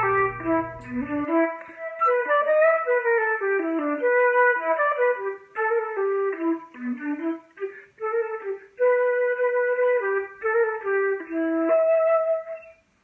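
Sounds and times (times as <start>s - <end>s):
flute melody: 0.0s - 12.8s.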